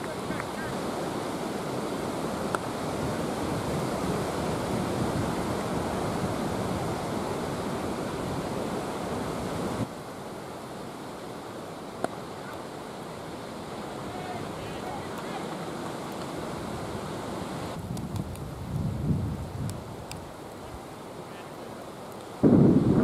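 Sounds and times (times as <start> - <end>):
wind buffeting microphone: 2.0 - 9.9, 16.4 - 20.8, 22.4 - 23.0.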